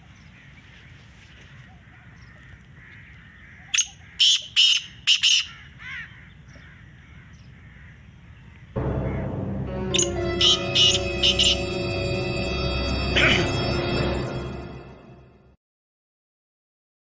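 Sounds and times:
distant birds and insects: 0:00.0 - 0:09.4
bird harsh grating calls: 0:01.8 - 0:08.0.

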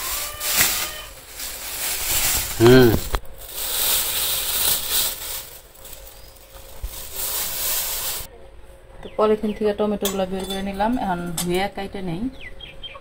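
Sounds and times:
plastic bag rustling: 0:00.0 - 0:08.3.

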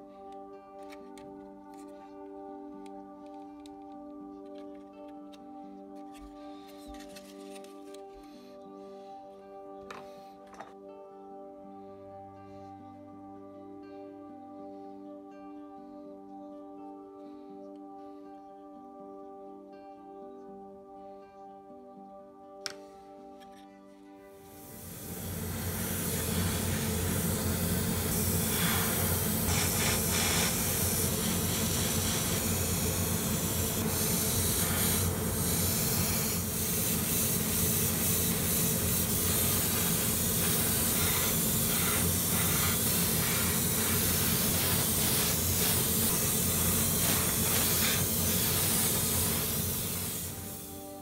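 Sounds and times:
airbrush spraying hiss: 0:24.4 - 0:51.0.

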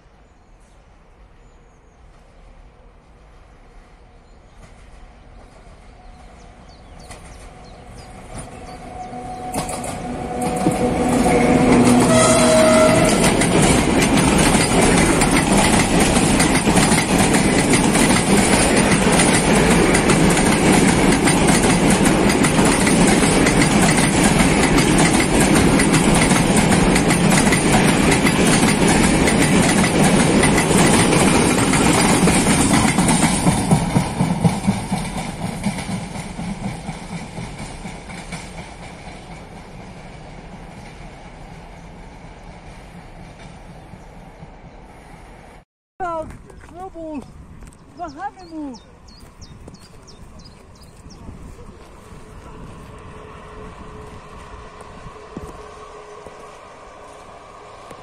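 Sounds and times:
electric locomotive passing: 0:02.0 - 0:45.6, 0:47.4 - 0:58.0
wagon wheels clattering over rail joints: 0:09.6 - 0:38.6.

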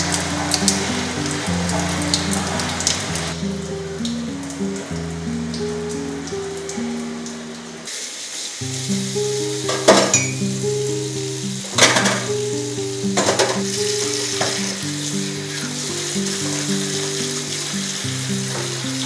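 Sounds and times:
background music of low notes: 0:00.0 - 0:07.9, 0:08.7 - 0:19.0
tap running into metal sink: 0:09.6 - 0:10.4, 0:11.8 - 0:12.4, 0:13.2 - 0:14.8
dishes clattering: 0:09.7 - 0:10.4, 0:11.8 - 0:12.3, 0:13.2 - 0:13.7.

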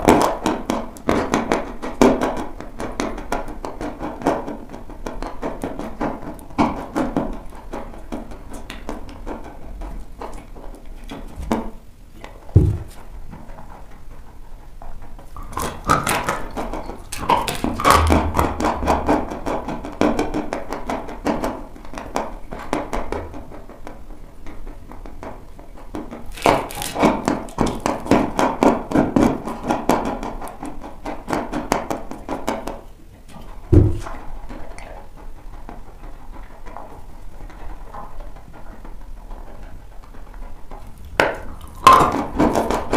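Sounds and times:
chewing dry chalk crunching: 0:26.3 - 0:28.2, 0:40.8 - 0:42.8.

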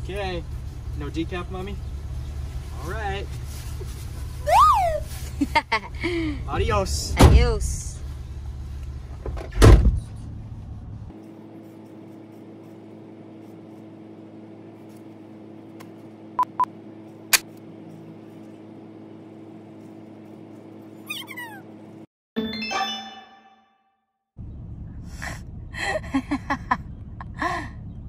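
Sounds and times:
low hum inside car: 0:00.0 - 0:22.1, 0:24.4 - 0:28.0
car door shutting: 0:09.2 - 0:10.0
short beeps: 0:16.4 - 0:16.7
falling chirps: 0:21.1 - 0:21.6.

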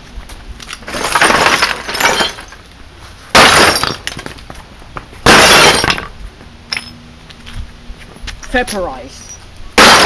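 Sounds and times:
glass and plastic shattering: 0:00.8 - 0:02.7, 0:03.3 - 0:04.3, 0:05.2 - 0:06.1, 0:09.8 - 0:10.0
hammer smashing television: 0:09.8 - 0:10.0.

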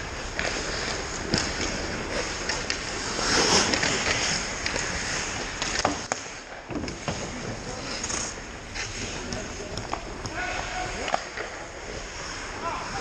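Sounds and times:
hockey sticks and puck clacking: 0:00.0 - 0:13.0
skates scraping ice: 0:00.0 - 0:13.0.

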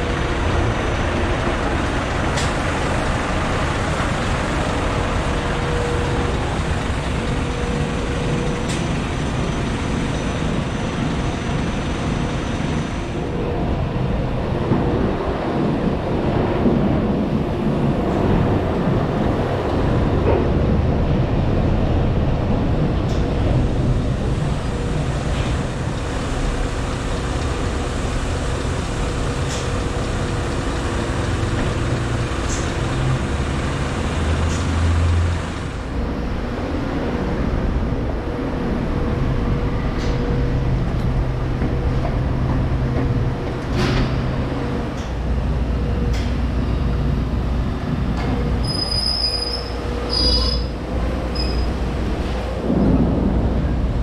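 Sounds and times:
tyre and chassis noise: 0:00.0 - 0:54.0
truck engine running: 0:23.4 - 0:36.5.

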